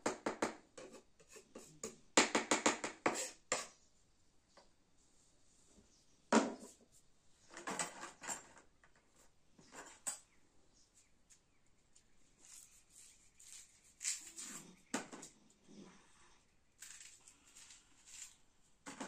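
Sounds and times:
knocks and rustling of handling: 0:05.7 - 0:10.4, 0:16.8 - 0:19.0.

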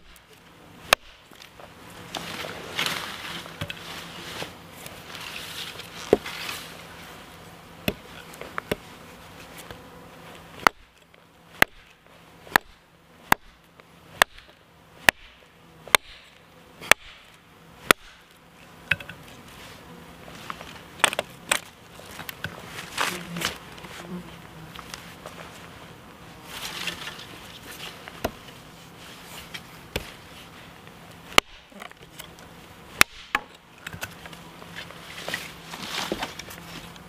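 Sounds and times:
hatchet chopping wood: 0:00.9 - 0:01.2, 0:07.8 - 0:08.8, 0:10.6 - 0:13.6, 0:14.2 - 0:18.3, 0:21.0 - 0:21.7, 0:28.2 - 0:28.4, 0:31.3 - 0:31.8, 0:33.0 - 0:34.1.

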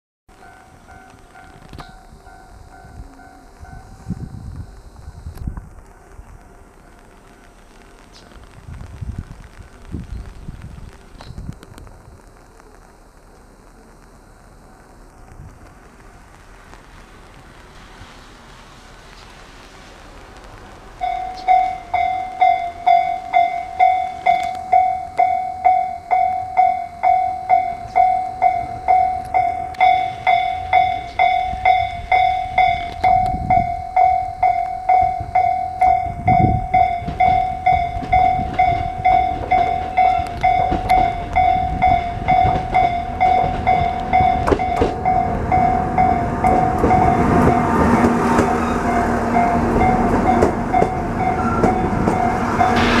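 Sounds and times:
train rumble: 0:00.3 - 0:53.0
level crossing electronic bell: 0:21.0 - 0:46.1.

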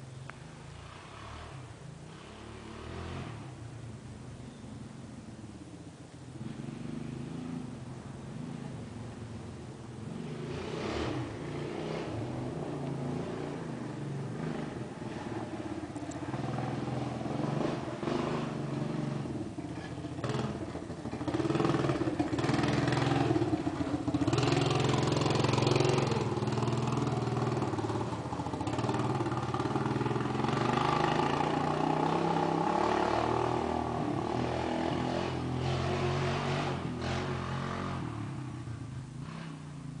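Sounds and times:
atv engine revving: 0:00.0 - 0:03.9, 0:06.4 - 0:40.0.

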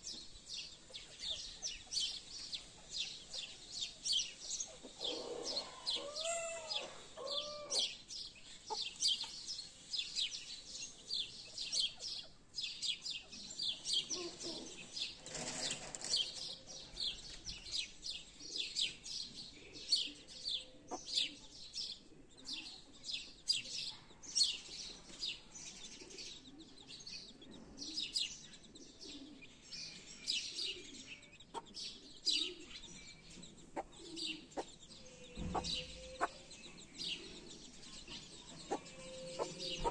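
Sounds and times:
chicks peeping: 0:00.1 - 0:10.6, 0:11.3 - 0:22.0, 0:24.7 - 0:39.9
hen clucking: 0:33.6 - 0:36.6, 0:38.0 - 0:39.9.

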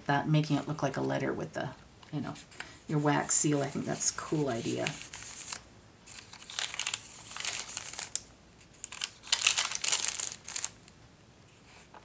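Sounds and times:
paper pages rustling: 0:03.5 - 0:10.9.

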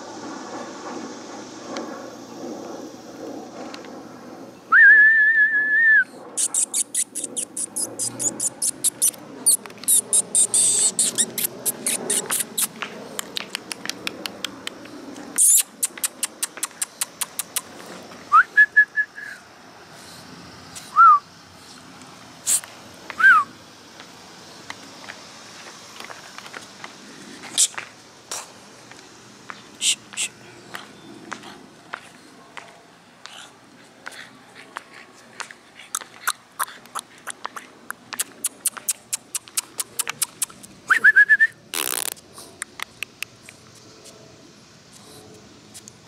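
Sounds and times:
person whistling: 0:04.7 - 0:06.1, 0:18.3 - 0:19.4, 0:20.9 - 0:21.2, 0:23.2 - 0:23.5, 0:40.9 - 0:41.6
mouth clicks: 0:06.4 - 0:14.8, 0:15.4 - 0:17.7, 0:35.4 - 0:43.6.

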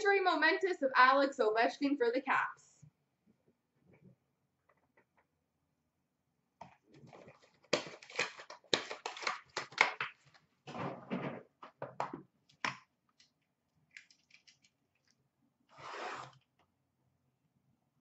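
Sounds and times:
packaging crinkling and tearing: 0:07.1 - 0:10.4, 0:13.9 - 0:15.1.

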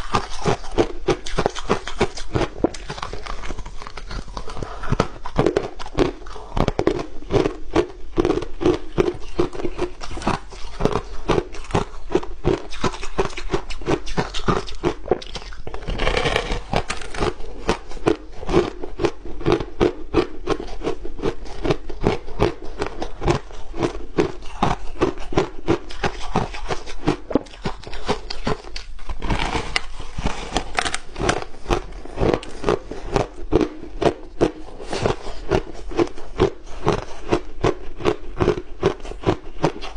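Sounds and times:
ice crunching while chewed: 0:00.0 - 0:39.9.

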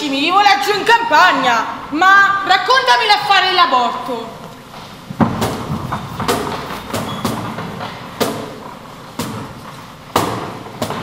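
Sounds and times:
heavy thumps echoing in hall: 0:04.7 - 0:11.0.

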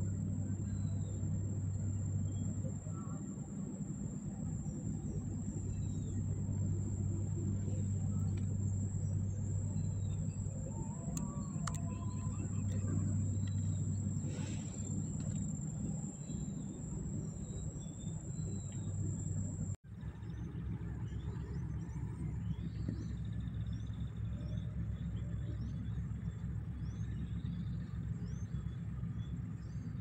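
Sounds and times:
thin high whine: 0:00.0 - 0:19.8
low motor-like rumble: 0:00.0 - 0:30.0.

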